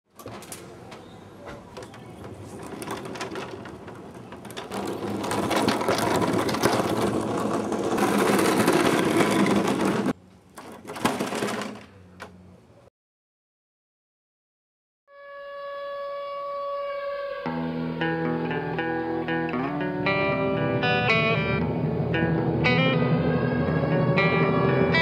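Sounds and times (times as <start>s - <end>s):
skateboard rolling on concrete: 0.2s - 12.5s, 17.5s - 25.0s.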